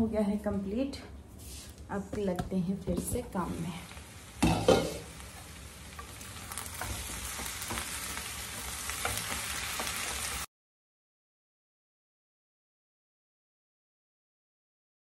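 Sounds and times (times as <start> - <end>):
vegetables sizzling in a frying pan: 3.0 - 10.5
spoon scraping and tapping pan: 4.4 - 10.2.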